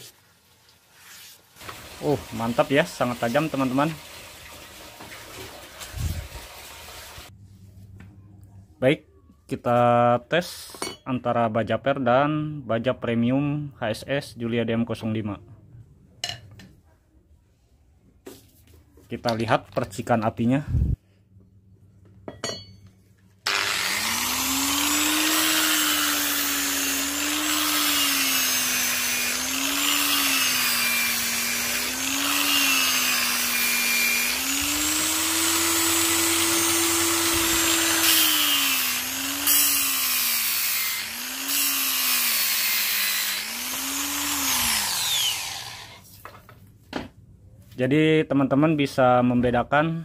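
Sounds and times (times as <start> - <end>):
electric grinder motor hum: 23.4 - 46.0.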